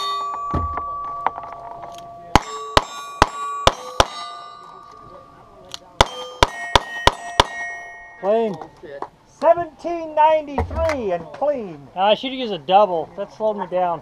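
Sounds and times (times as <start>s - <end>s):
steel plate ringing: 0.0s - 8.8s.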